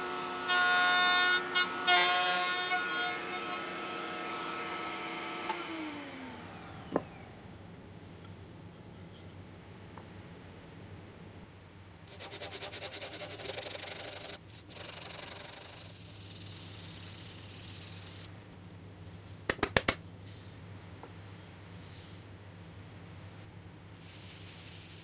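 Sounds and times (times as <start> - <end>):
sandpaper rubbing wood: 12.1 - 18.3.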